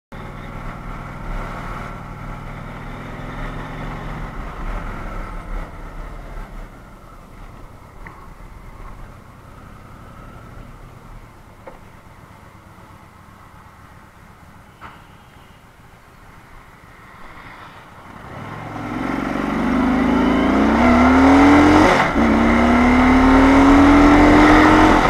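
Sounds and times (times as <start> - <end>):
motorcycle engine accelerating: 0.2 - 11.8, 18.0 - 25.0.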